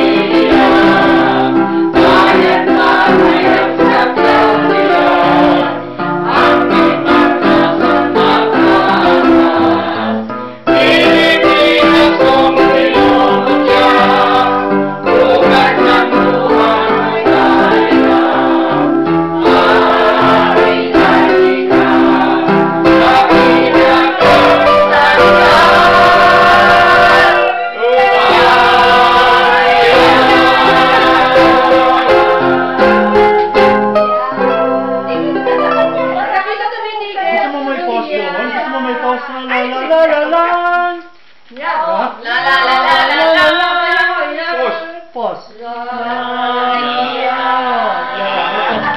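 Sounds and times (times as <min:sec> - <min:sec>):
choir singing: 0:00.0 - 0:36.6, 0:42.2 - 0:45.0, 0:45.7 - 0:48.9
electronic keyboard accompaniment: 0:00.0 - 0:36.7.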